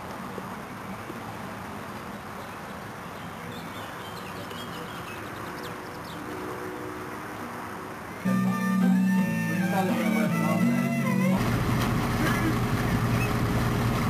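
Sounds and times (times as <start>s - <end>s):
birds chirping: 0.8s - 11.4s
loud music: 8.3s - 11.7s
boat engine running: 8.3s - 14.0s.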